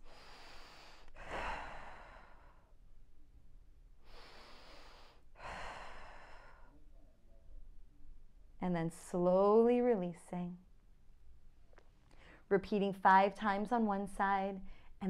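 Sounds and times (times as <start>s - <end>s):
woman breathing deeply: 0.0s - 2.8s, 4.0s - 6.9s.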